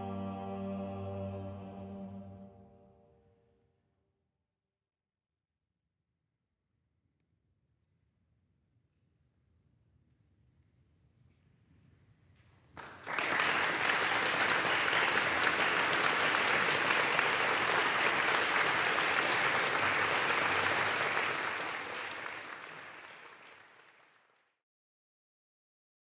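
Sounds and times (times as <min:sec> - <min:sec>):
audience applauding: 0:12.8 - 0:24.4.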